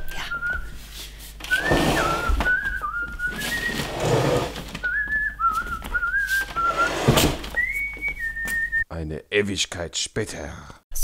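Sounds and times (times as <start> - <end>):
person whistling a tune: 0.2 - 0.8, 1.5 - 4.1, 4.8 - 8.8
shopping bags rustling: 1.5 - 7.6.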